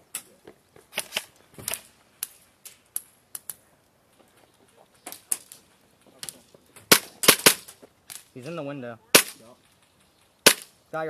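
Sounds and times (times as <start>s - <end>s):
airsoft gun shots: 6.9s - 7.7s, 9.1s - 9.4s, 10.4s - 10.7s.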